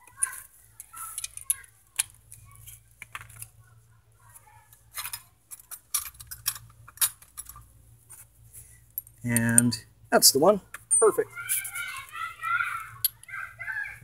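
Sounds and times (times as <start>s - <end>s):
metal tools clinking and rattling: 0.1s - 3.5s, 4.7s - 7.7s.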